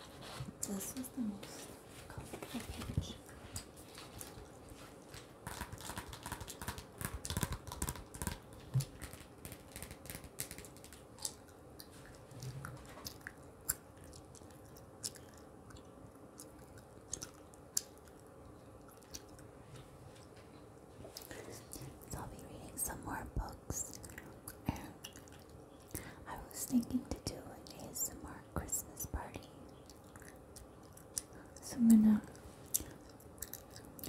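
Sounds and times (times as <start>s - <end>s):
gum chewing smacks: 3.2s - 19.5s, 29.7s - 31.6s, 32.2s - 34.0s.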